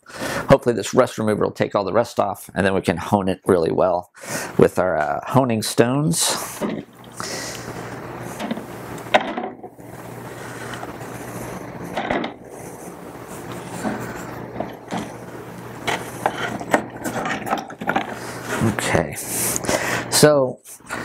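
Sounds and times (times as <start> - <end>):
low steady hum: 0.1 - 21.0
metal parts clinking and knocking: 15.8 - 18.2.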